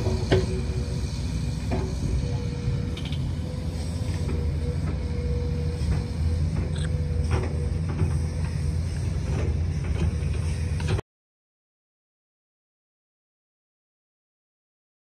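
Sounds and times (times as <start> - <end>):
diesel machinery rumbling: 0.0 - 11.0
thin steady whine: 0.0 - 11.0.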